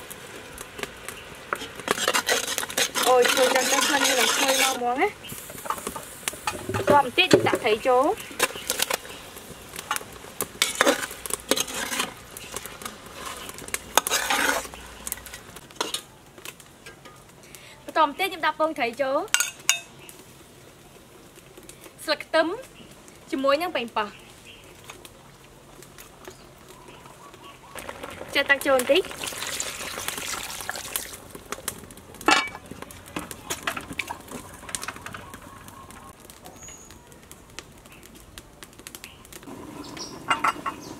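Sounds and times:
fish sizzling in sauce: 0.0s - 18.1s, 19.0s - 38.0s, 39.3s - 40.9s
metal utensil scraping a pot: 1.5s - 5.0s, 10.6s - 14.8s, 15.8s - 16.0s, 40.1s - 40.9s
water pouring into a pot: 27.8s - 31.2s
metal lid clanking: 40.2s - 40.9s.

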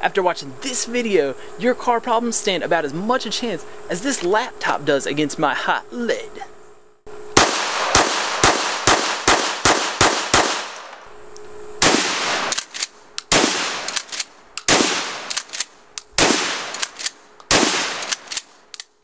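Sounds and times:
shotgun blasts: 7.4s - 10.9s, 11.8s - 15.6s, 16.2s - 18.4s
pistol shots: 7.4s - 11.0s, 11.8s - 15.6s, 16.2s - 18.5s.

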